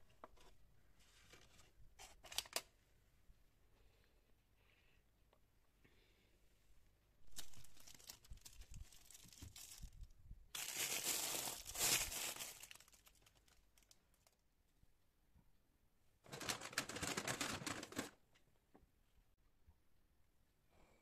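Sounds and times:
plastic packaging crinkling: 7.3 - 14.4, 16.3 - 18.2.

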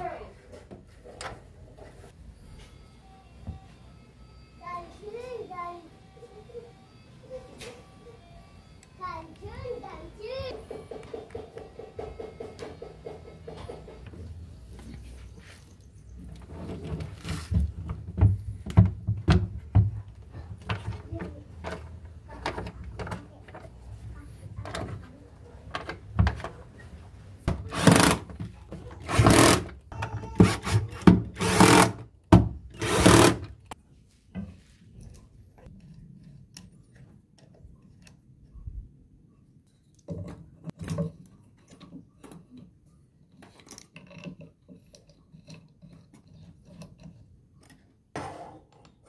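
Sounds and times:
fittings clicking and knocking: 27.5 - 33.8
short loud rasping bursts: 29.0 - 32.0, 32.8 - 33.6.

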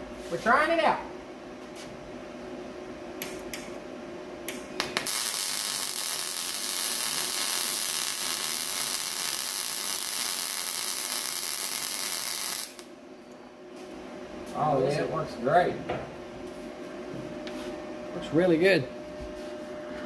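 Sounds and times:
welder arc hissing: 5.0 - 12.9.

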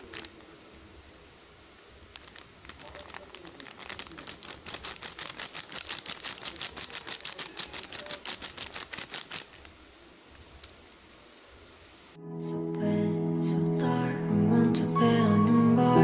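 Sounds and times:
flour pattering onto plate: 0.0 - 0.6, 2.0 - 9.8
packet crinkling: 0.0 - 0.6, 2.0 - 9.8.

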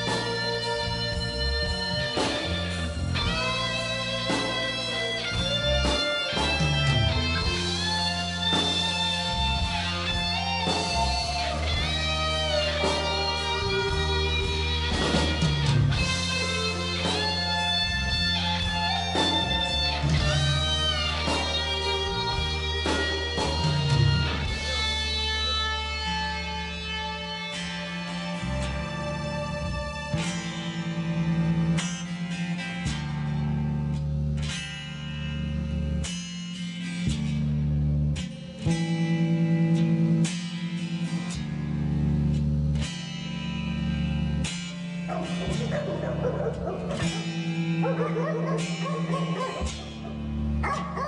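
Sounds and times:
bass line: 0.0 - 51.0
electric guitar bent notes: 0.0 - 51.0
rock band playing live: 0.0 - 51.0.

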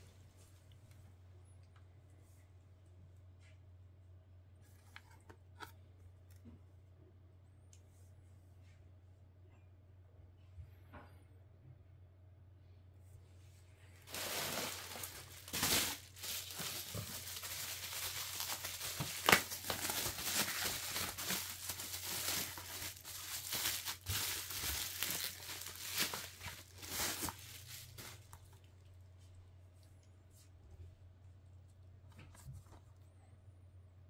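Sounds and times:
packaging crinkling and rustling: 14.0 - 28.8.

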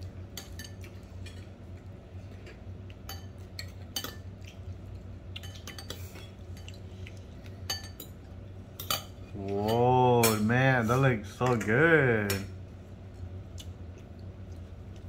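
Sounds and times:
cutlery clinking on ceramic bowl: 3.1 - 4.3, 7.7 - 8.2.

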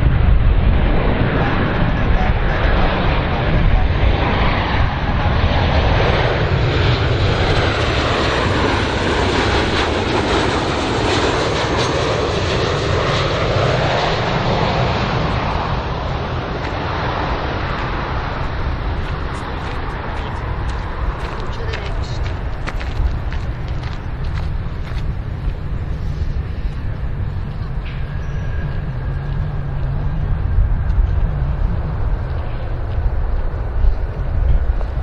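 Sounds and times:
jet engine rumble and roar: 0.0 - 35.0.

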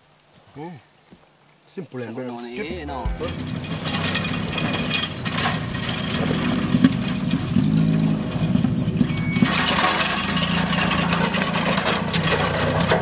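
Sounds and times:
vehicle engine droning: 2.6 - 13.0.

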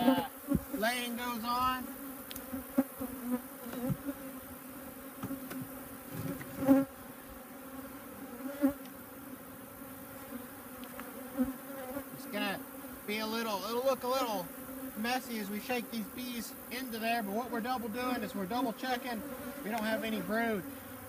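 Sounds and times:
honeybees buzzing: 0.0 - 21.0
wooden hive boxes knocking: 3.6 - 4.1, 5.2 - 6.8.

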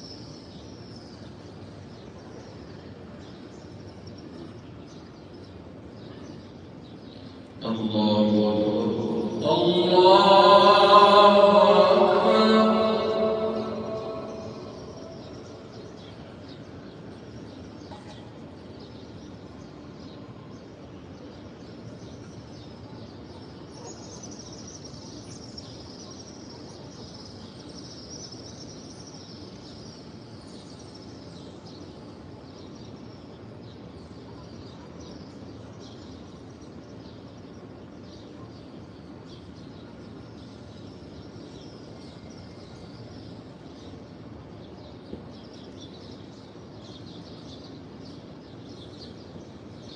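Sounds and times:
low background din: 7.6 - 16.4.

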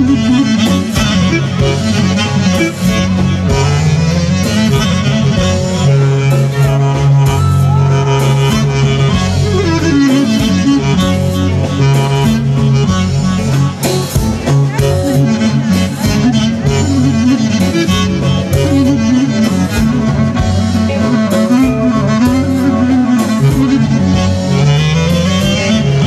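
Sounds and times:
folk band playing: 0.0 - 26.0
violin melody: 0.0 - 26.0.

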